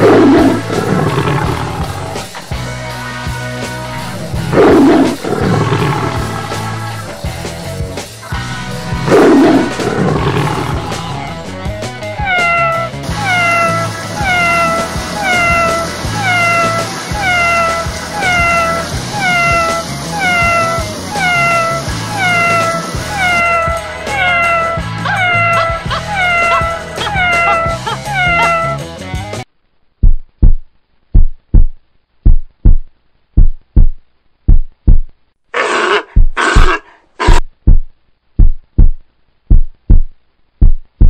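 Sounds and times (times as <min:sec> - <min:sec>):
cat meowing: 0:12.2 - 0:28.8
deep heartbeat thumps: 0:30.0 - 0:35.1, 0:36.1 - 0:41.0.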